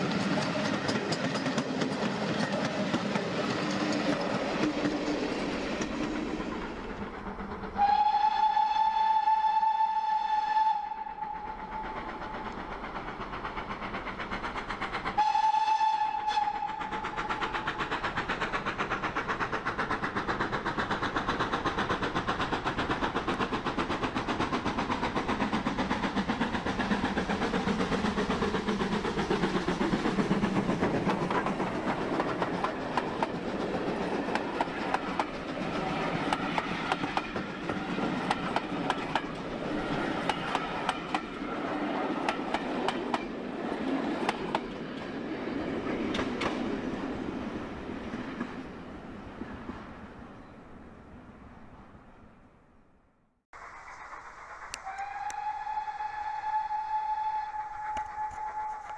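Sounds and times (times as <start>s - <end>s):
steam locomotive exhaust beats: 0.0s - 50.6s, 53.6s - 58.9s
train wheels clicking on rail joints: 0.0s - 50.6s, 53.6s - 58.9s
steam locomotive whistle: 7.7s - 12.8s, 15.1s - 18.0s, 53.9s - 58.9s.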